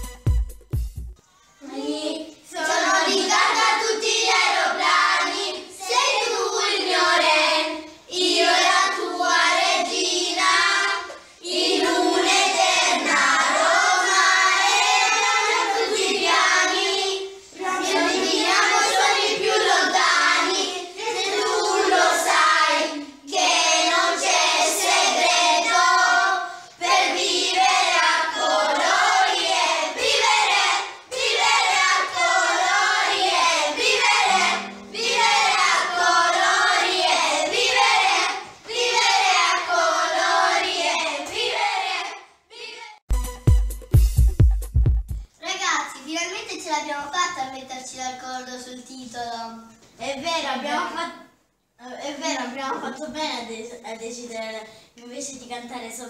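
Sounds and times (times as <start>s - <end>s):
children singing together: 1.3s - 42.8s.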